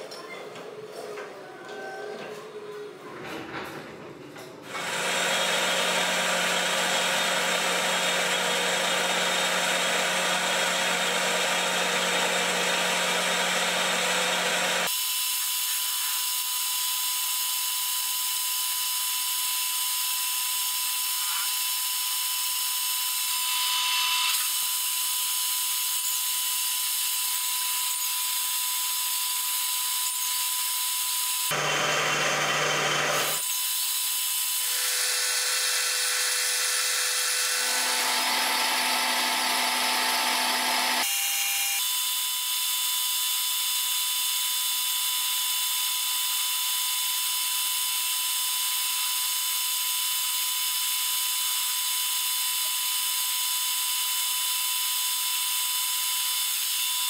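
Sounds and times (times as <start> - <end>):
metal lathe whine: 27.0 - 33.7, 34.6 - 41.9.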